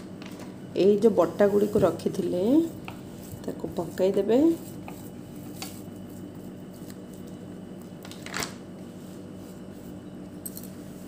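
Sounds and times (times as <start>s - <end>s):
steady low hum: 0.0s - 11.0s
hands squishing dough: 1.4s - 8.0s.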